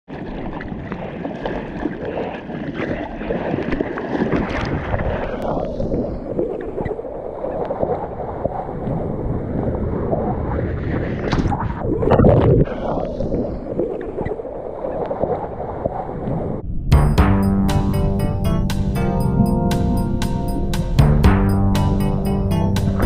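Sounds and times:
seawater splashing and rushing: 0.1 - 16.6.

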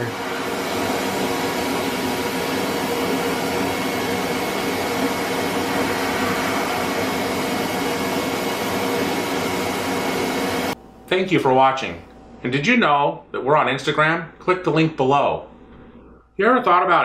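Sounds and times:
bead blaster hissing: 0.0 - 10.8.

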